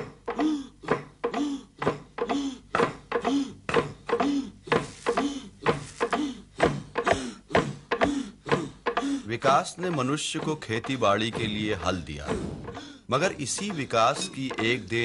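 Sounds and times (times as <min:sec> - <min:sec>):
wooden log drums struck: 0:04.8 - 0:15.0.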